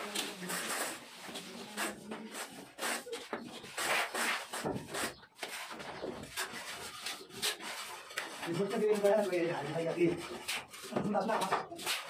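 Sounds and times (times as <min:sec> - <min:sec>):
trowel scraping plaster: 0:00.0 - 0:12.0.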